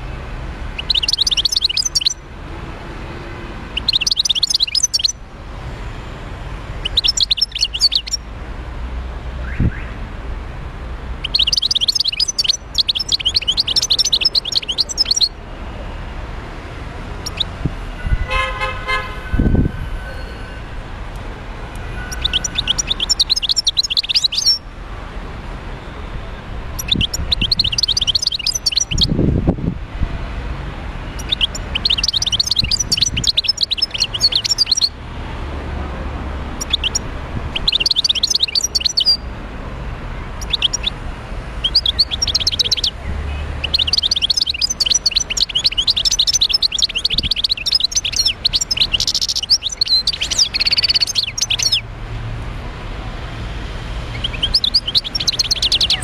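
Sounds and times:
goldfinch twittering song: 0:00.8 - 0:02.2, 0:03.8 - 0:05.2, 0:06.8 - 0:08.2, 0:11.2 - 0:15.4, 0:17.2 - 0:17.5, 0:22.0 - 0:24.6, 0:26.8 - 0:29.2, 0:31.1 - 0:35.0, 0:36.6 - 0:39.3, 0:40.4 - 0:41.0, 0:41.6 - 0:51.8, 0:54.1 - 0:56.0.

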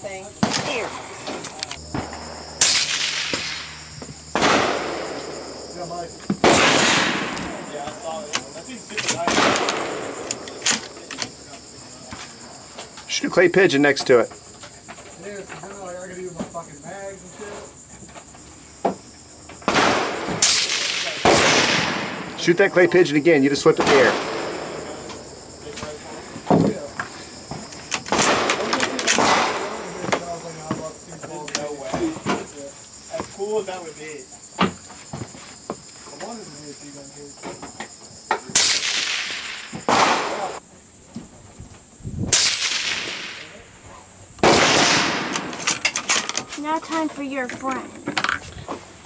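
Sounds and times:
crickets chirring: 0:00.0 - 0:49.0
rifle shots: 0:02.0 - 0:05.6, 0:06.4 - 0:07.8, 0:09.0 - 0:11.0, 0:19.6 - 0:22.6, 0:23.7 - 0:25.1, 0:28.0 - 0:29.9, 0:38.6 - 0:40.6, 0:42.3 - 0:43.6, 0:44.4 - 0:45.7
faint voices: 0:22.3 - 0:34.4.

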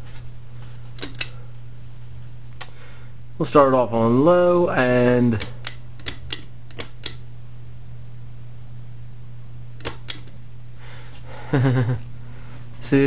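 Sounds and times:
ceiling fan motor humming: 0:00.0 - 0:13.0
sharp clicks: 0:05.4 - 0:07.2, 0:09.8 - 0:10.4.

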